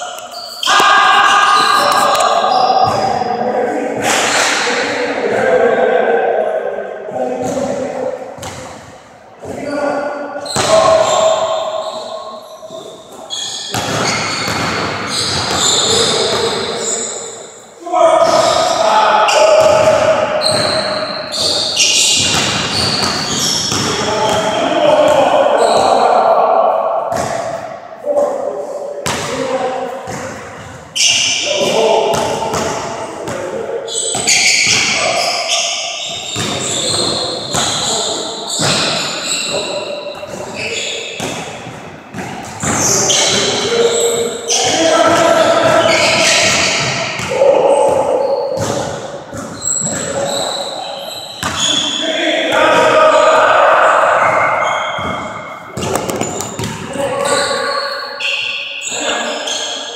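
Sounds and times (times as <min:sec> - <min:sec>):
basketball bouncing on hardwood floor: 0:55.0 - 0:56.9.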